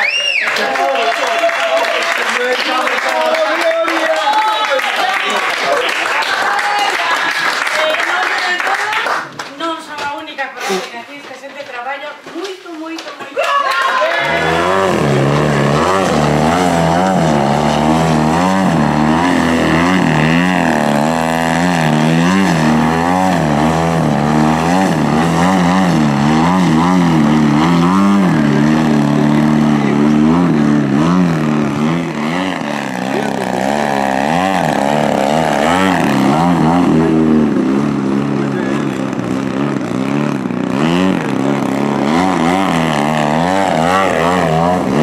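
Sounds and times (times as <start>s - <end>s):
model plane engine revving: 14.2s - 45.0s.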